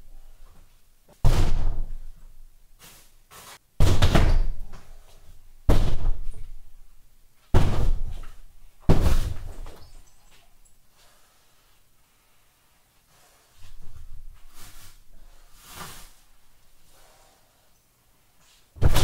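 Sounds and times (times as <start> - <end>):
drywall being smashed: 1.2 - 2.1, 3.8 - 4.7, 5.6 - 6.6, 7.5 - 9.8, 18.8 - 19.0.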